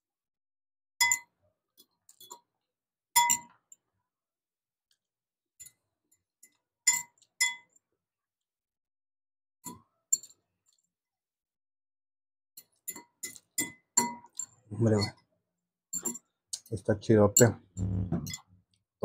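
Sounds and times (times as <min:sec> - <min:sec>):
fork clinking against glass bowl: 0:12.8 - 0:15.2.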